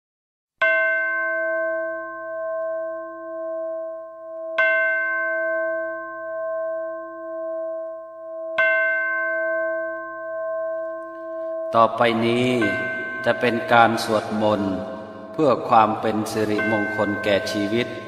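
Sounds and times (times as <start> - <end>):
bell ringing: 8.6 - 18.0.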